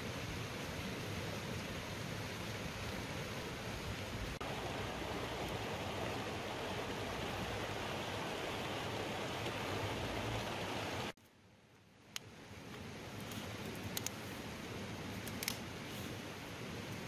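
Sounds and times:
river rushing over rocks: 0.0 - 11.2.

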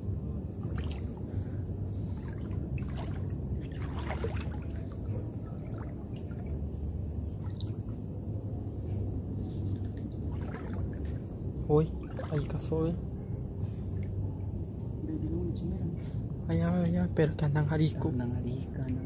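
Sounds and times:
steady low water wash: 0.0 - 14.3
people wading through water: 0.6 - 8.0, 10.1 - 12.7.

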